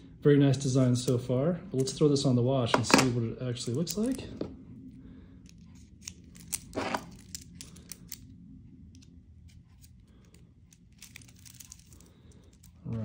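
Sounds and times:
watch band connector scraping: 0:05.4 - 0:08.2.

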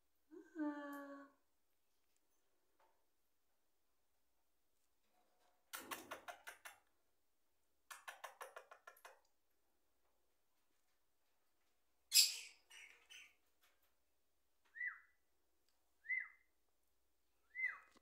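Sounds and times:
whistled calls: 0:16.0 - 0:16.4, 0:17.5 - 0:18.0.

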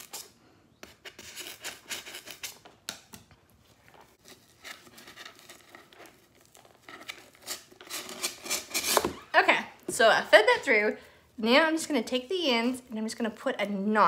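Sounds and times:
scissor tips scraping foam board: 0:00.0 - 0:02.7, 0:06.8 - 0:09.2.

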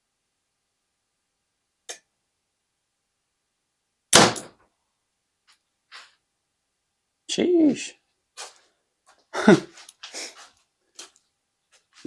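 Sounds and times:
arrow striking target: 0:04.1 - 0:04.6.

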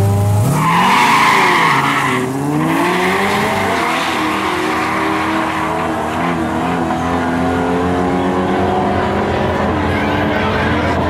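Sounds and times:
racing car engines accelerating: 0:00.0 - 0:11.0
tire squeal: 0:00.4 - 0:07.4, 0:09.7 - 0:11.0.

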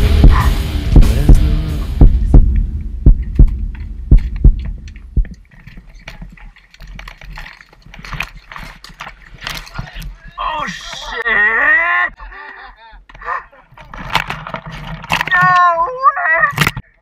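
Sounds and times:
deep double thumps: 0:00.0 - 0:05.8
mountain bike rolling over rocks: 0:04.4 - 0:11.1, 0:13.8 - 0:15.8.

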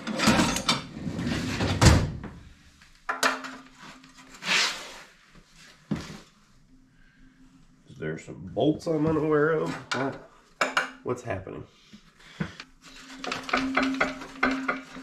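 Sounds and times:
tools clattering: 0:13.0 - 0:15.0.

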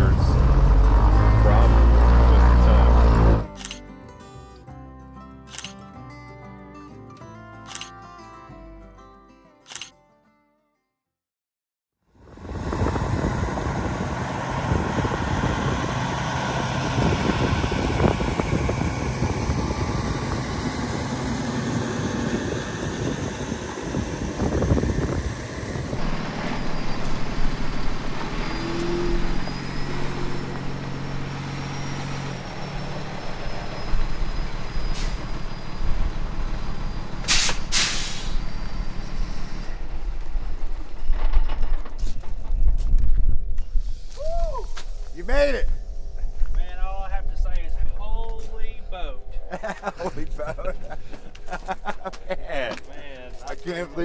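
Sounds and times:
truck diesel engine running: 0:00.0 - 0:03.6, 0:12.3 - 0:41.3
air brake hiss: 0:34.9 - 0:35.3, 0:37.2 - 0:38.5.

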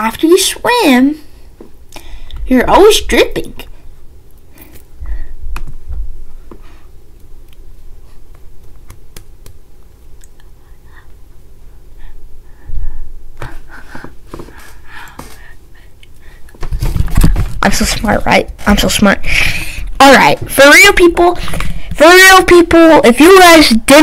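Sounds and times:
microphone handling bumps: 0:16.6 - 0:18.7.

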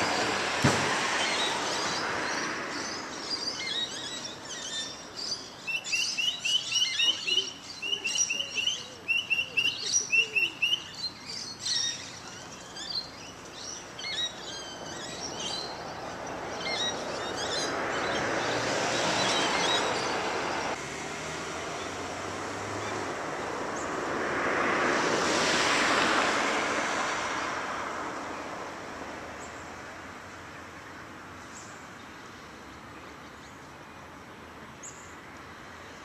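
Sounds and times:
car passing: 0:00.0 - 0:04.4, 0:14.1 - 0:30.8
birds chirping: 0:00.0 - 0:20.8.

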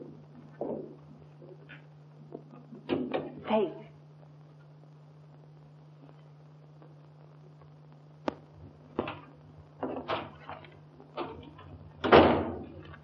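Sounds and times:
knocks and footsteps: 0:00.0 - 0:03.4
film soundtrack hum: 0:00.0 - 0:13.0.

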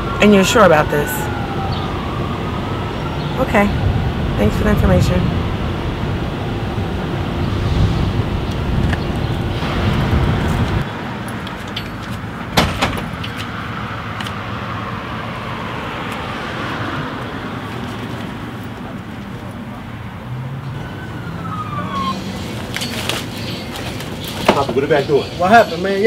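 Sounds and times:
low vehicle rumble: 0:00.0 - 0:24.4
street noise: 0:00.0 - 0:26.0.

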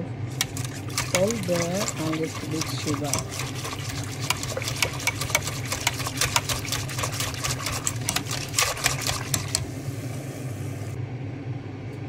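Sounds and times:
steady low hum: 0:00.0 - 0:12.0
whisk rattling in metal pot: 0:00.3 - 0:09.8.

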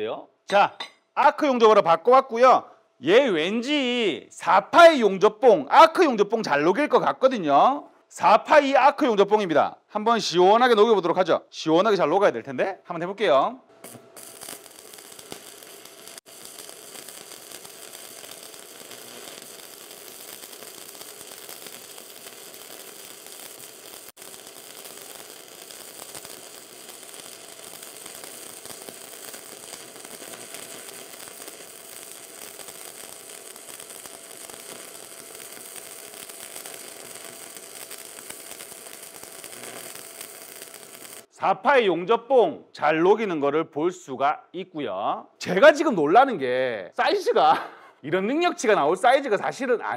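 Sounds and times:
welding arc crackling: 0:13.7 - 0:41.3.

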